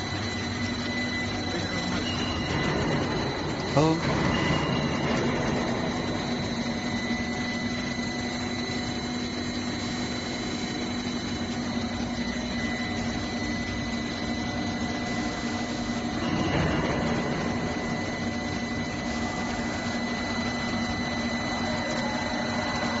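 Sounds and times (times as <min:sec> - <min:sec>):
production line machinery drone: 0:00.0 - 0:23.0
thin high whine: 0:00.0 - 0:23.0.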